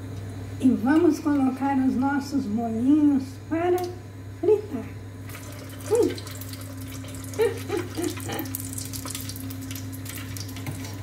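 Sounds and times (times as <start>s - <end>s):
hot oil sizzling and crackling: 5.2s - 11.0s.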